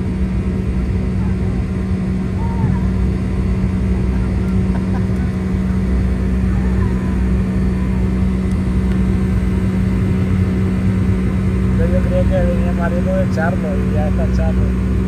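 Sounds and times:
vehicle engine drone: 0.0 - 15.0.

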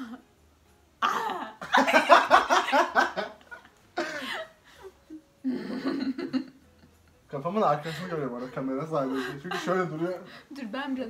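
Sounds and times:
woman laughing in bursts: 1.0 - 6.5.

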